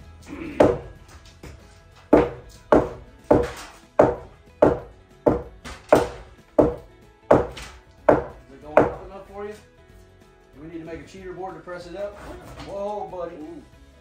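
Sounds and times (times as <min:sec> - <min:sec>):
hammer knocking on wood: 0:00.6 - 0:09.1.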